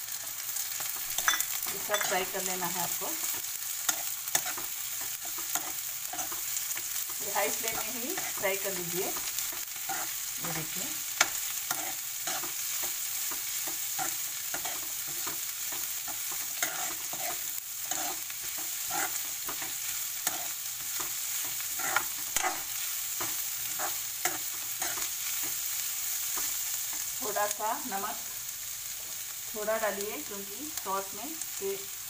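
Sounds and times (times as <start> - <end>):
vegetables sizzling in oil: 0.0 - 32.0
spatula scraping and tapping pan: 0.8 - 2.4, 3.3 - 10.6, 11.2 - 25.6
spatula clink: 1.1 - 2.4.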